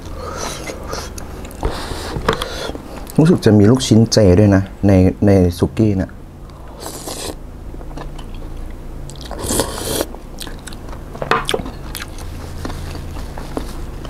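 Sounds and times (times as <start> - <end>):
person slurping food: 6.6 - 7.4, 9.3 - 10.1
chewing with wet crunches: 6.9 - 13.7.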